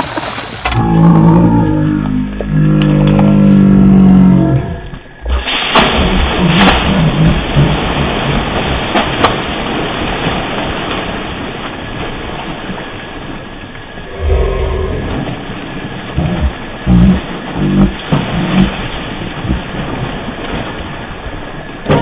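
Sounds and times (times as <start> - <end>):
splashing and thrashing in water: 0.0 - 22.0
splash into water: 5.2 - 13.5, 15.0 - 22.0.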